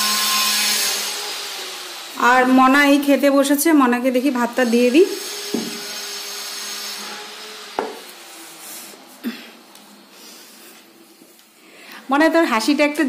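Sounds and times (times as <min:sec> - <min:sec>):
plate knocking on table: 0:05.5 - 0:05.8.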